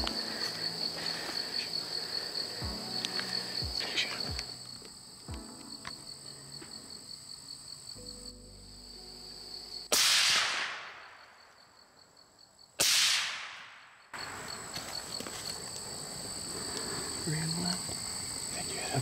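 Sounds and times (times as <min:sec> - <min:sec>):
insects trilling: 0:00.0 - 0:12.8, 0:13.9 - 0:19.0
rifle shots: 0:09.9 - 0:11.4, 0:12.8 - 0:14.5.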